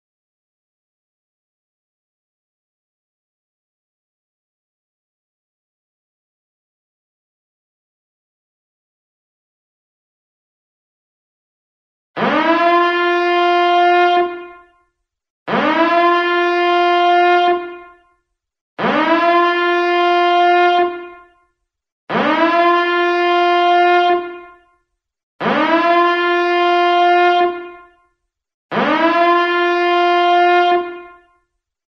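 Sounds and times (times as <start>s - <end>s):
buzzy alarm horn blasts: 12.2s - 14.9s, 15.5s - 18.2s, 18.8s - 21.5s, 22.1s - 24.8s, 25.4s - 28.1s, 28.7s - 31.5s.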